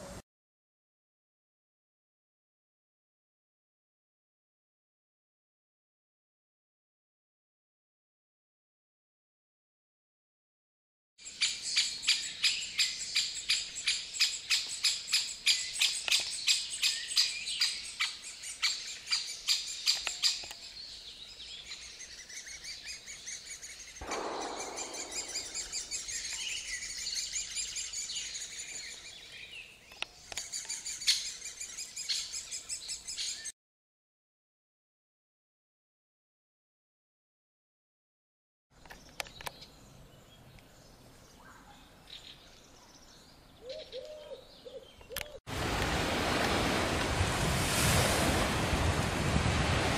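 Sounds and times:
sharp bird calls: 11.2 - 33.5, 43.6 - 45.4
brief rushing sound: 24.0 - 26.7
woodpecker chicks chattering: 24.1 - 28.6.

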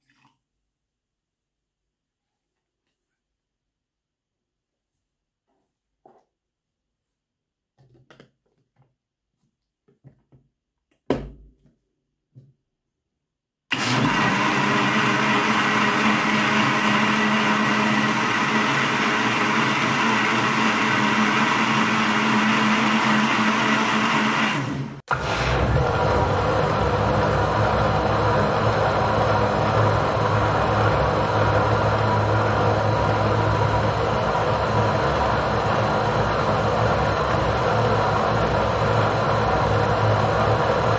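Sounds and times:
blender churning: 13.7 - 40.9.

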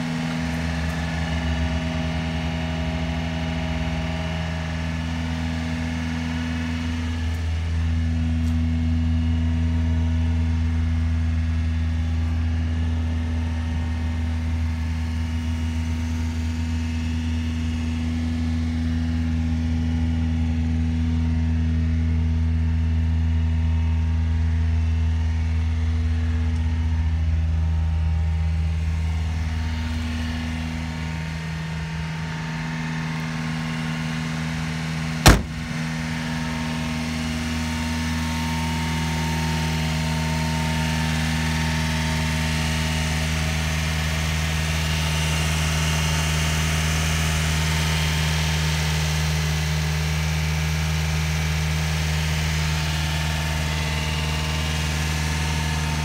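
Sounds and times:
truck engine idling: 0.0 - 40.4
sharp knock: 35.2 - 35.9.

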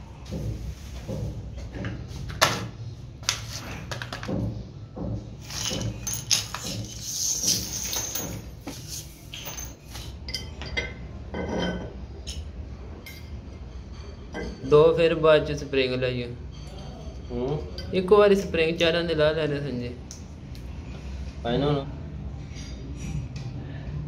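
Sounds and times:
small metal parts clinking: 5.4 - 11.0.

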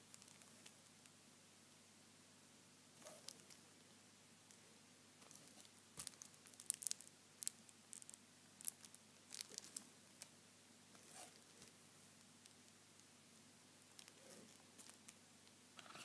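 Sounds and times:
gum packaging crinkling: 5.3 - 9.8, 13.9 - 15.2.

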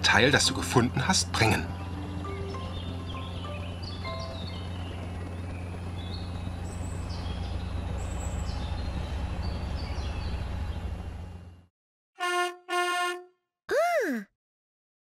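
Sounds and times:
birds chirping: 0.6 - 11.1.

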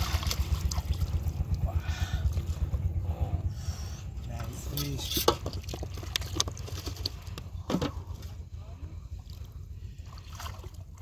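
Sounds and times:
splashing in shallow water: 0.0 - 1.7, 4.4 - 8.4, 9.2 - 11.0
low rumble: 0.0 - 11.0.

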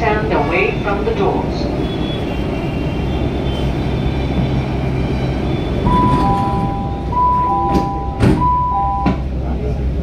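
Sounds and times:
two-note door chime: 5.9 - 9.2.

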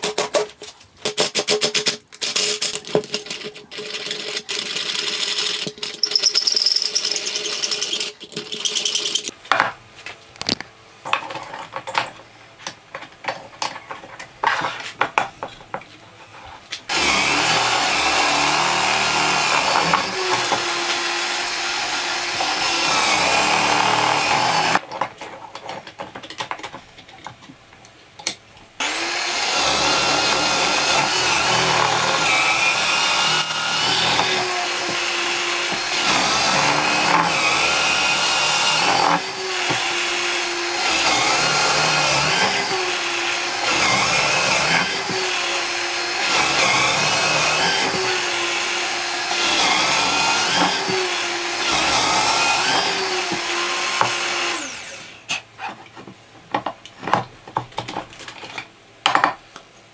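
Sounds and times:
drill press drilling wood: 16.9 - 24.8, 28.8 - 55.1.

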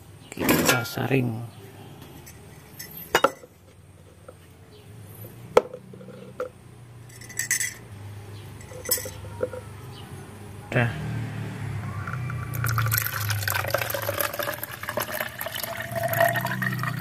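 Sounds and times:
plastic strainer and cup clinking: 8.6 - 9.6, 12.1 - 17.0.

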